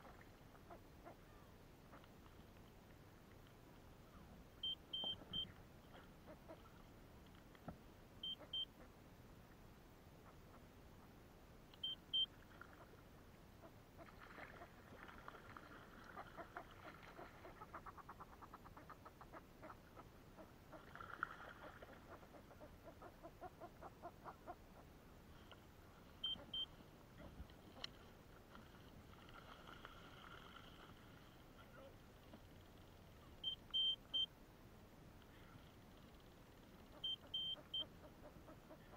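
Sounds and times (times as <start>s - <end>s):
faint electronic double beep: 4.6s - 5.6s, 8.2s - 8.7s, 11.8s - 12.3s, 26.2s - 26.8s, 33.4s - 34.3s, 37.0s - 37.9s.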